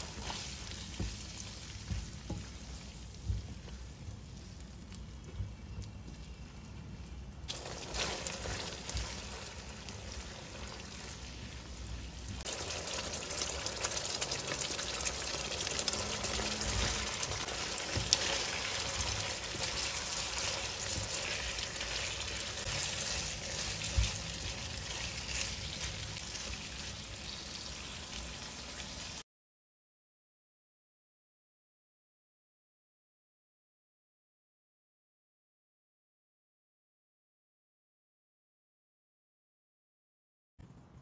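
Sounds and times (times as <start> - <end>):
spatula stirring food in wok: 0.0 - 4.4, 7.5 - 29.2
sauce sizzling and bubbling: 0.0 - 6.0, 6.6 - 29.2.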